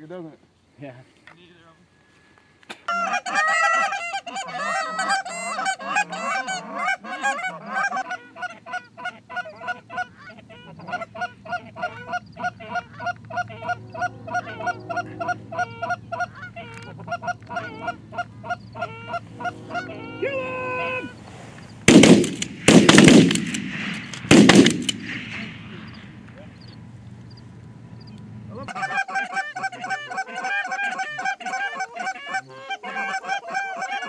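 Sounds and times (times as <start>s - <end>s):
goose calls honking and clucking: 2.9s - 21.2s, 28.5s - 34.0s.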